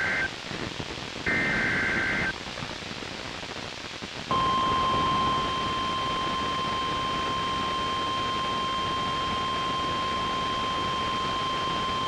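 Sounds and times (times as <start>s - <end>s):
radio reception hiss: 0.0s - 12.0s
steady warning alarm tone: 4.3s - 12.0s.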